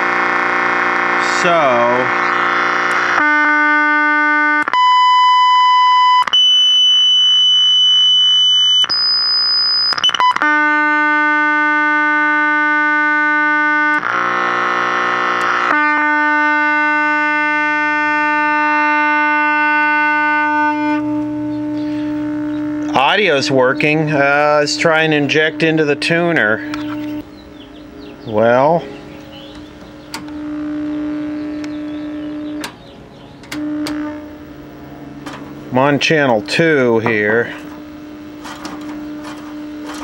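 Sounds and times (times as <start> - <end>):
test tones through television speaker: 0.4 - 10.4, 20.5 - 27.2, 28.2 - 32.8, 33.5 - 34.8, 35.6 - 40.0.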